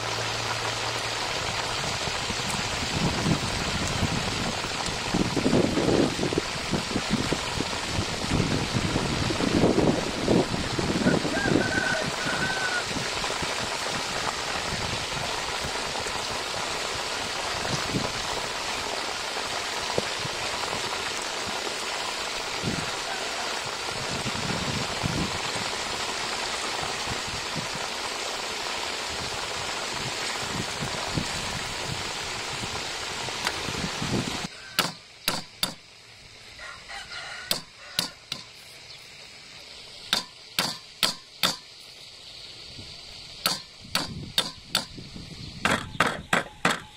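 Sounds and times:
frogs deep-frying in oil: 0:00.0 - 0:46.9
knife chopping on wooden board: 0:34.8 - 0:35.8, 0:37.5 - 0:38.5, 0:40.1 - 0:41.6.

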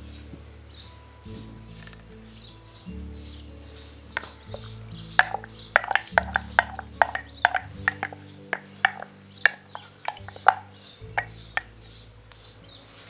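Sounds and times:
birds chirping faintly: 0:00.0 - 0:13.0
soft held chords: 0:00.0 - 0:13.0
clicking percussion: 0:04.2 - 0:11.7.

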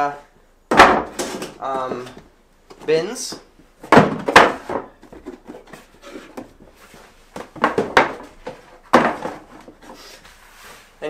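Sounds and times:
plastic bins knocking on shelves: 0:00.7 - 0:02.3, 0:03.2 - 0:06.7, 0:07.3 - 0:09.8.

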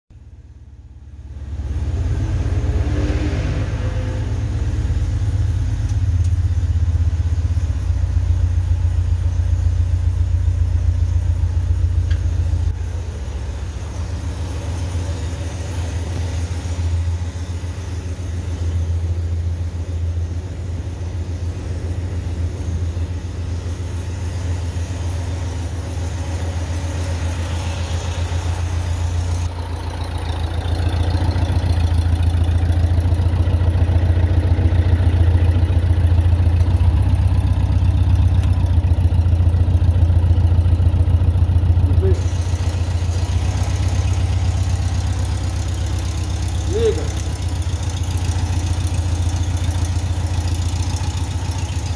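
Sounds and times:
engine idling: 0:00.1 - 0:51.9.

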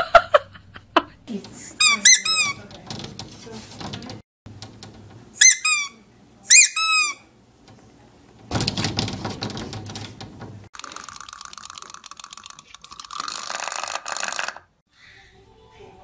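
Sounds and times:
rubber squeeze toy squeaking: 0:01.8 - 0:02.7, 0:05.4 - 0:07.2
scratchy rustling: 0:02.5 - 0:04.2.

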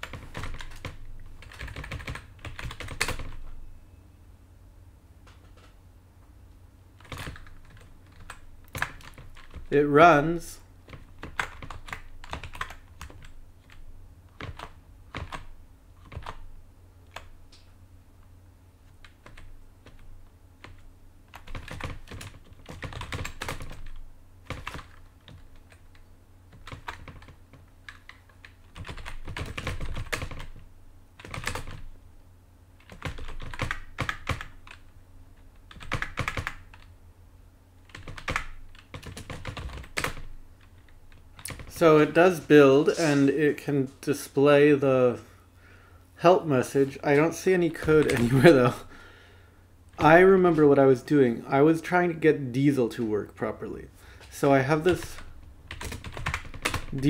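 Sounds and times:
computer keyboard typing: 0:00.0 - 0:03.5, 0:07.0 - 0:09.7, 0:10.9 - 0:13.8, 0:14.4 - 0:16.4, 0:19.0 - 0:30.6, 0:31.2 - 0:31.9, 0:32.8 - 0:34.8, 0:35.6 - 0:36.9, 0:37.8 - 0:41.9, 0:47.8 - 0:48.8, 0:54.8 - 0:57.0
low steady hum: 0:00.0 - 0:57.0.

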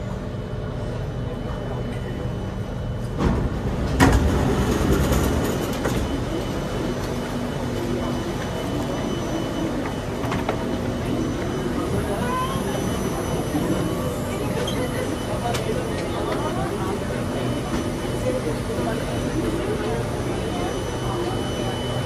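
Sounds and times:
passengers' footsteps and bustle: 0:00.0 - 0:22.0
train humming: 0:00.0 - 0:22.0
train doors sliding open: 0:03.0 - 0:07.2.

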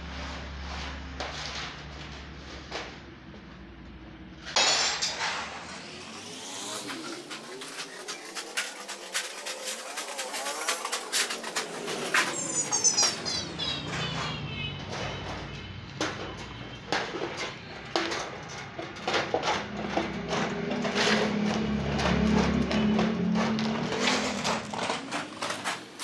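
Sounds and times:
metal sheet scraping and rattling: 0:04.4 - 0:14.3, 0:16.9 - 0:26.0
short falling whine: 0:04.9 - 0:13.3.

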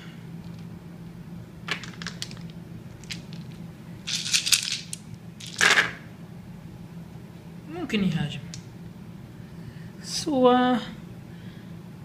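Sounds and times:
dice rattling and clattering: 0:01.7 - 0:06.0.

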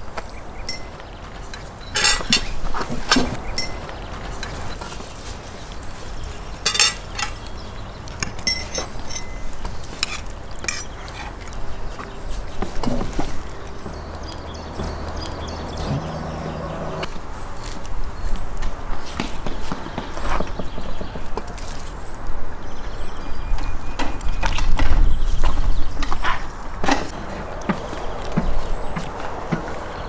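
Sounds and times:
metal wire rack handled: 0:01.9 - 0:03.8, 0:06.6 - 0:07.5, 0:08.2 - 0:10.9
tableware clinking: 0:01.9 - 0:04.6, 0:06.6 - 0:07.4, 0:08.2 - 0:10.9.

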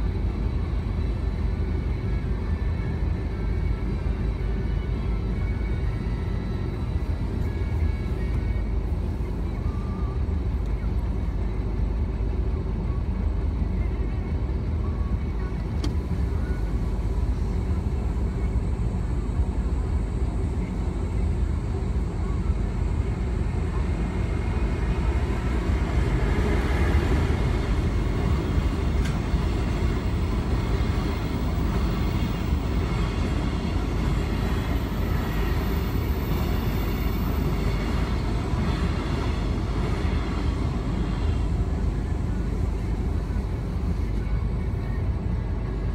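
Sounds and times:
muffled rumble of freight train: 0:00.0 - 0:45.9.

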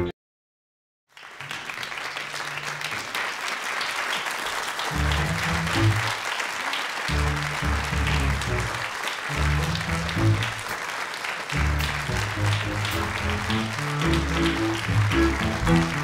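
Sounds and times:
audience applauding: 0:01.1 - 0:16.0
low bass notes: 0:04.9 - 0:06.0, 0:07.1 - 0:10.6, 0:11.6 - 0:16.0.

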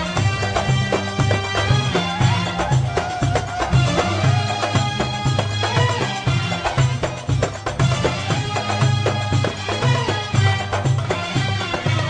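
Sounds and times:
background music with steady beat: 0:00.0 - 0:12.0.

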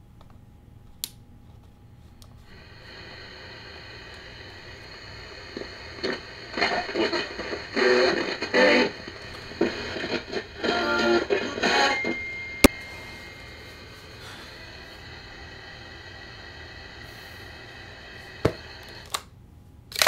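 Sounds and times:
radio static hiss: 0:02.4 - 0:19.1
thin high whistle: 0:11.6 - 0:14.3.

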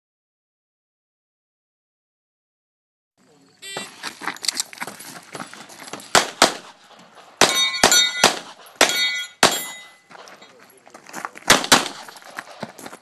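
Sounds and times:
rapid pistol shots: 0:06.1 - 0:09.8, 0:11.5 - 0:12.6
steel targets ringing: 0:07.4 - 0:10.5.

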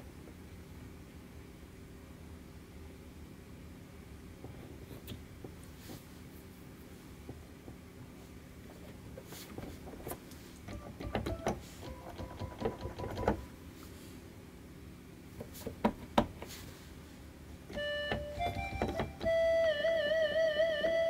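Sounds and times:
electronic keyboard notes: 0:17.7 - 0:21.0.

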